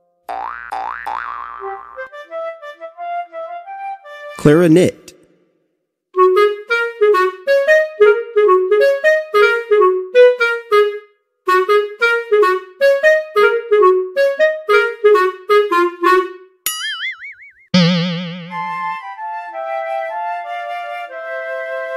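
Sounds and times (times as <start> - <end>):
clarinet playing lively melody: 6.2 - 11.0, 11.6 - 16.3, 17.8 - 19.2.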